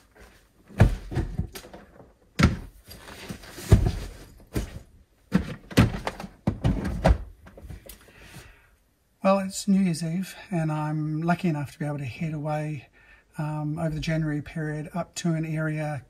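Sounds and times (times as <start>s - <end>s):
rustling: 0.0s - 6.2s
thuds and knocks of gear: 0.7s - 7.9s.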